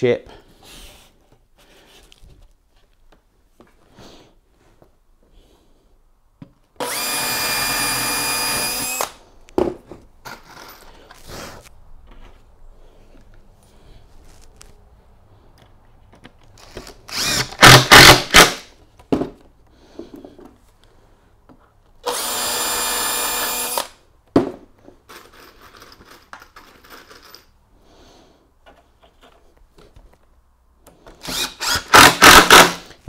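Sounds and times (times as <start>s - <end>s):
cordless drill driving screws: 6.8s - 9.2s, 16.6s - 18.6s, 22.0s - 24.0s, 31.1s - 32.9s.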